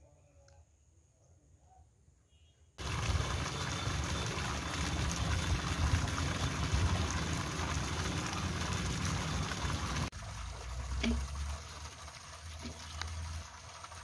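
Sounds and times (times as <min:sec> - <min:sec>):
water pouring into pool: 0:02.8 - 0:14.0.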